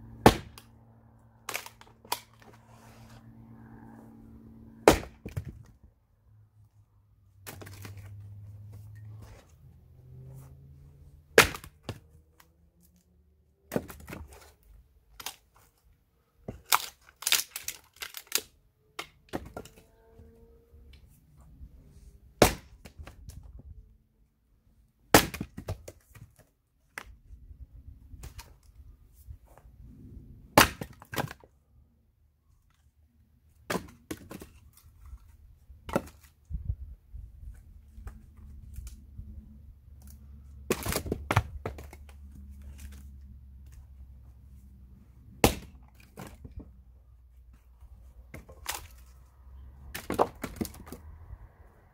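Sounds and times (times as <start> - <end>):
axe splitting firewood: 0.0 - 0.7, 1.4 - 3.2, 4.7 - 5.8, 7.4 - 8.2, 11.2 - 13.1, 13.7 - 19.8, 22.3 - 23.5, 25.1 - 27.1, 28.1 - 28.8, 30.5 - 31.5, 33.6 - 36.4, 40.0 - 43.0, 45.2 - 46.7, 48.3 - 49.1, 49.8 - 51.1
wooden knocks of falling pieces: 40.6 - 42.2, 49.9 - 51.0.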